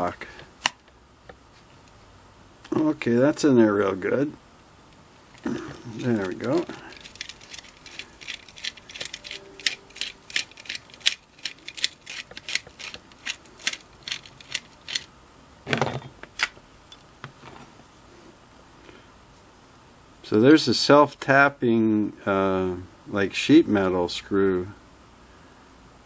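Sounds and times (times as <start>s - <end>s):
screwdriver clicking: 6.1s - 15.1s.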